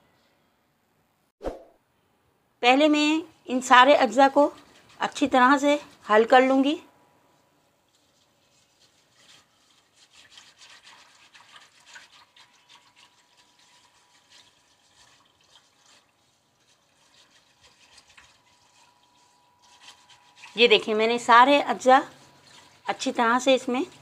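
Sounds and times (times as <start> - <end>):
liquid swishing: 4.2 - 6.3, 7.6 - 20.8, 21.7 - 23.1.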